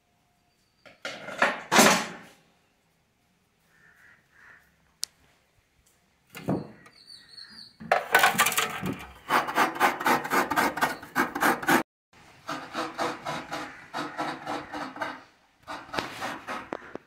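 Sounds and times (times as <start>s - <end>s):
coconut scraper rasping strokes: 8.9s - 11.8s, 12.4s - 17.0s.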